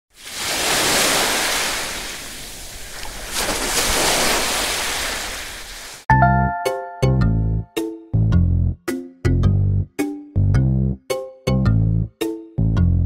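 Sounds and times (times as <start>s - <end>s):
ocean waves washing in: 0.1s - 6.1s
music: 6.1s - 13.0s.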